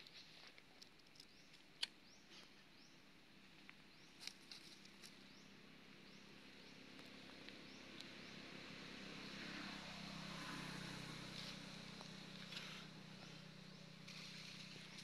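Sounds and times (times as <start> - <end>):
dry leaves crackling: 11.2 - 15.0.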